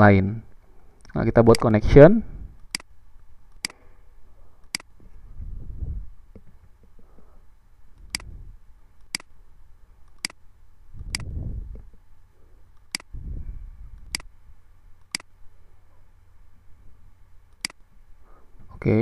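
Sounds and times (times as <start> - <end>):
soft low rumbles: 0.0 - 19.0
computer mouse clicking: 10.1 - 10.4, 17.5 - 17.8.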